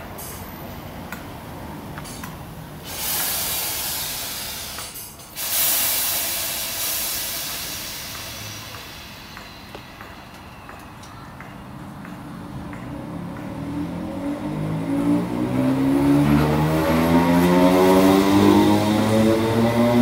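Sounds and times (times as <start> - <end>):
compressed air venting hiss: 2.8 - 10.2.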